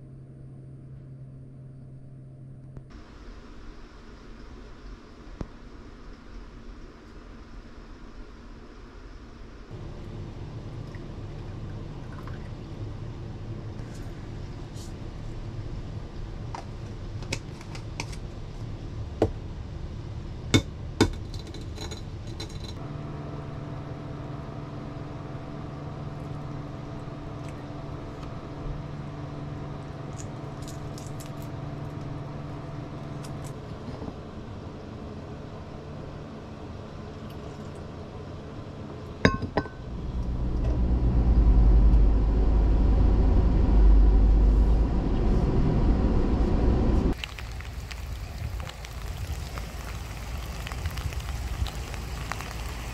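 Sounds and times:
camper van driving rumble: 9.7 - 52.9
steady hum: 22.8 - 40.3
glass jar and porcelain clinking: 39.3 - 39.8.

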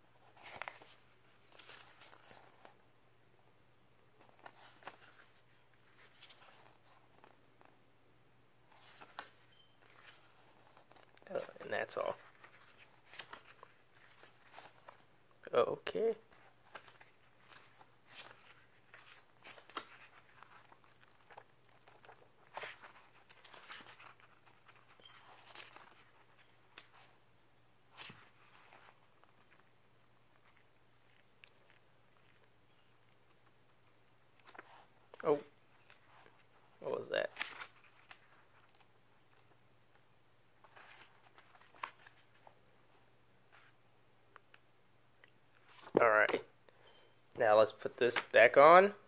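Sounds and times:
paper pages rustling: 0.2 - 2.8, 4.2 - 7.8, 8.7 - 15.1, 16.3 - 27.2, 27.9 - 39.6, 40.6 - 42.6, 45.5 - 46.4.

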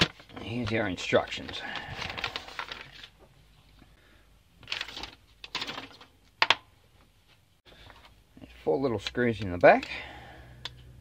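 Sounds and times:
paper crinkling and rustling: 0.0 - 3.3, 4.6 - 6.1.

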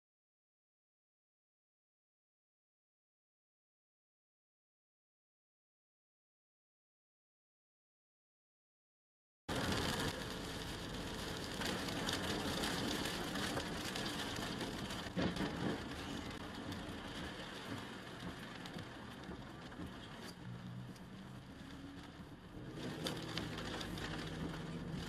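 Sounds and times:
heavy rain and tyre spray: 9.5 - 25.0.

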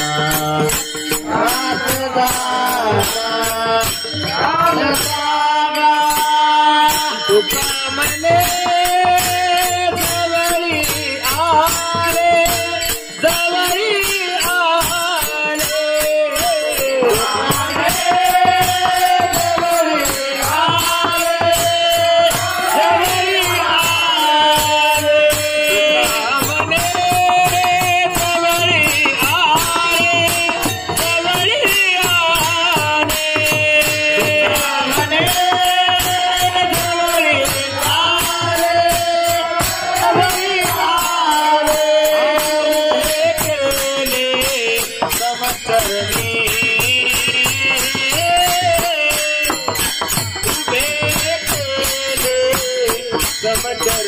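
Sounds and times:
people singing along: 0.0 - 53.2
lead voice singing into microphone: 0.0 - 54.0
barrel drum: 16.0 - 54.0.

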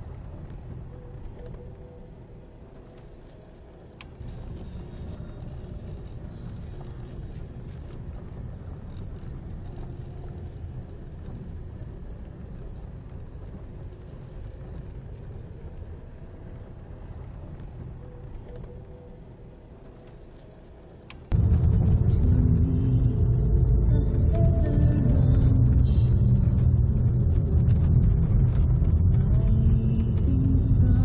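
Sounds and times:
tyre and road noise: 0.0 - 31.0
car engine running low: 21.2 - 31.0.

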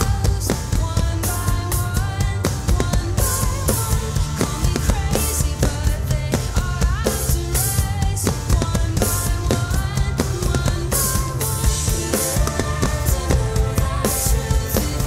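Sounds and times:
rock song: 0.0 - 15.0
electronic drum kit hits: 7.8 - 15.0.

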